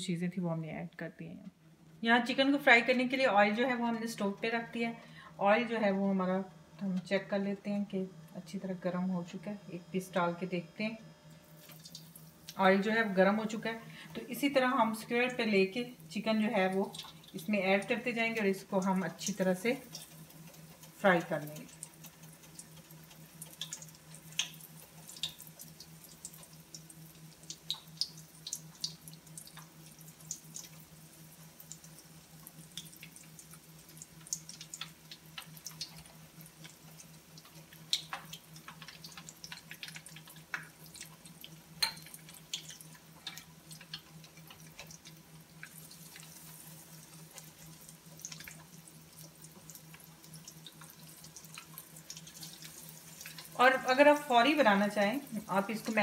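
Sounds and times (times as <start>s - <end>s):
chicken deep-frying in oil: 11.3s - 56.0s.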